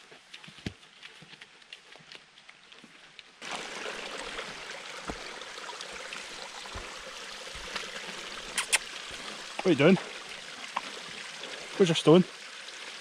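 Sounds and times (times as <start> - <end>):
stream babbling over stones: 3.4 - 13.0.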